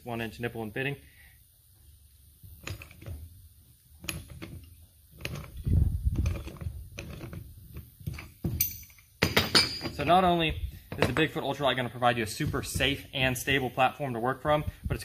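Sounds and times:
pipe wrench clicking and scraping: 0:04.0 - 0:10.0.

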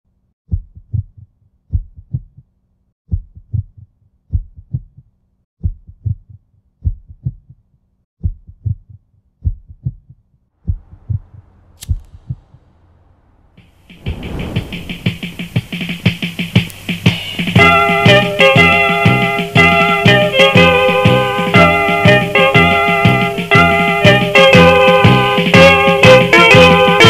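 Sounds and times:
heartbeat thumps: 0:00.5 - 0:02.4, 0:03.1 - 0:05.0, 0:05.6 - 0:07.6, 0:08.2 - 0:12.7, 0:13.9 - 0:18.2
hiss: 0:10.8 - 0:17.6
lighter flicking click: 0:11.8 - 0:12.2.

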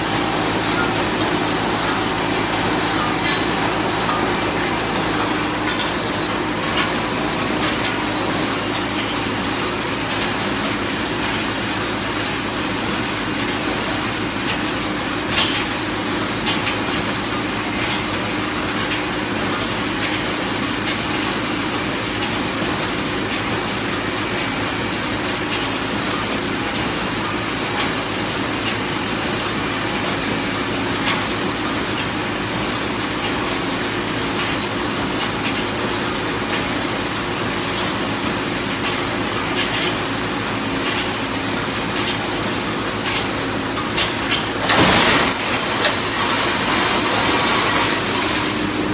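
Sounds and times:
welding machine humming: 0:19.9 - 0:48.9.

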